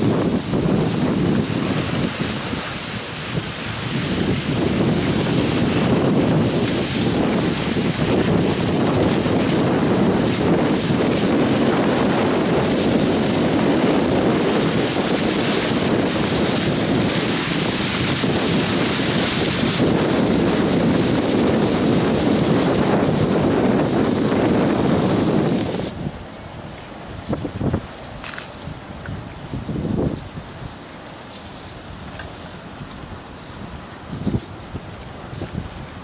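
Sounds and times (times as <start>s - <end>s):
river current carrying ice: 0.0s - 36.0s
wind buffeting microphone: 0.0s - 36.0s.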